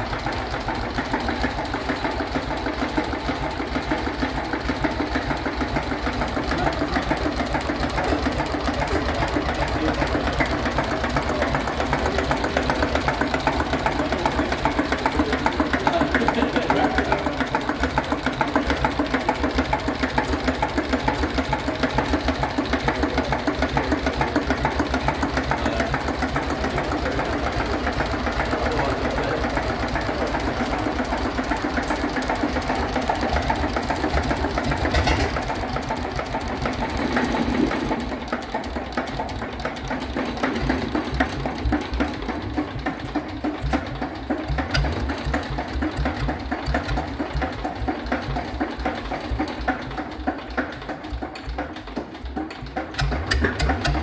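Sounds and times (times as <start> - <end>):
diesel engine running: 0.0 - 54.0.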